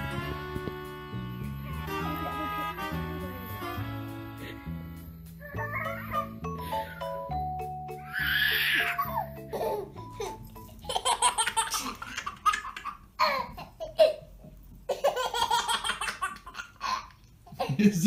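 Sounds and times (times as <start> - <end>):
baby laughing: 1.6 - 3.6, 5.4 - 7.1, 8.0 - 17.8.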